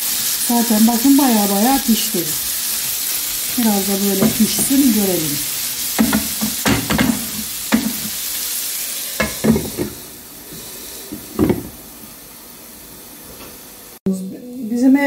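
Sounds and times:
vegetables sizzling in frying pan: 0.0s - 14.0s
wooden spoon knocking and scraping pan: 2.8s - 5.2s, 5.9s - 8.2s, 9.2s - 10.0s, 11.1s - 11.8s.

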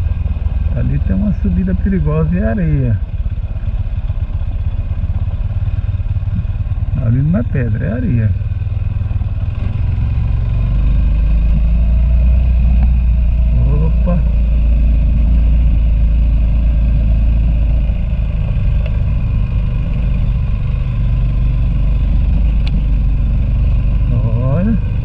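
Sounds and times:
motorcycle running: 0.0s - 25.0s.

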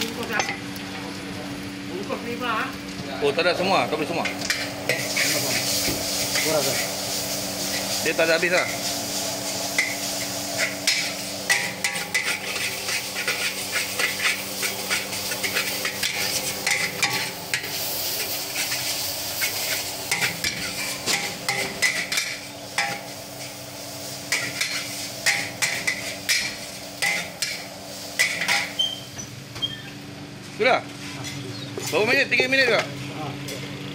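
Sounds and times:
steady sizzle: 0.0s - 30.4s
metal spatula scraping a wok: 4.5s - 23.6s, 24.3s - 29.8s.

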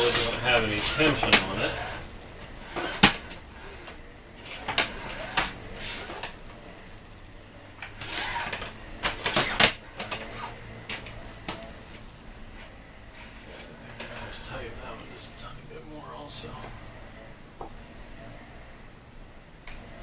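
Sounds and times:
plastic window shade rail clicking: 7.8s - 11.8s.

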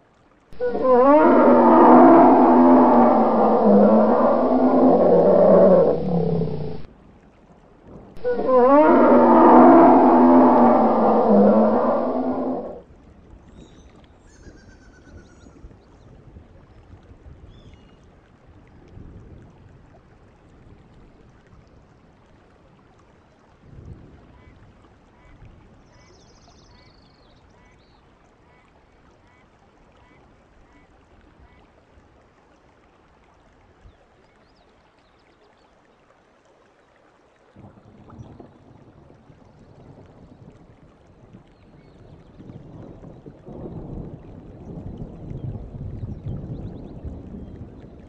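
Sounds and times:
wind buffeting microphone: 37.6s - 48.0s.

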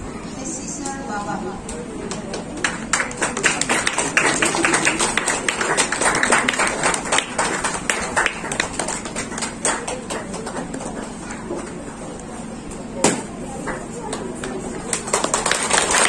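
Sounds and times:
voices: 0.0s - 16.0s
crowd applauding: 2.0s - 11.5s, 14.5s - 16.0s.

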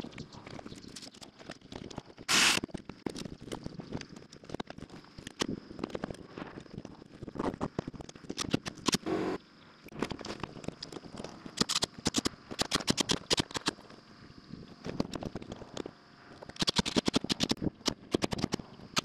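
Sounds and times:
short buzz: 9.0s - 9.4s.

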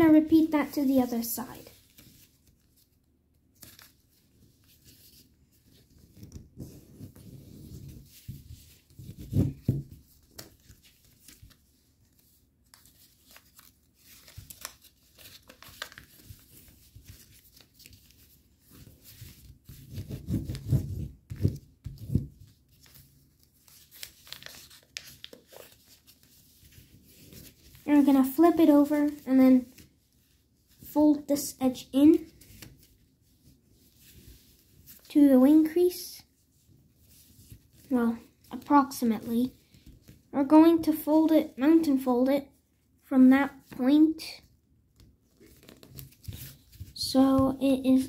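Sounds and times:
paper rustling and crinkling: 0.9s - 31.5s, 32.1s - 35.2s, 45.0s - 48.0s
crisp ticks of paper folds: 1.6s - 31.2s, 44.9s - 48.0s.

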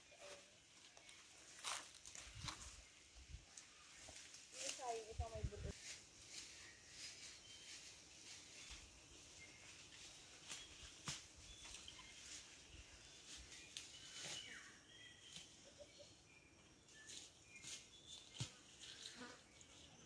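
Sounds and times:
bird chirps: 10.5s - 18.4s.

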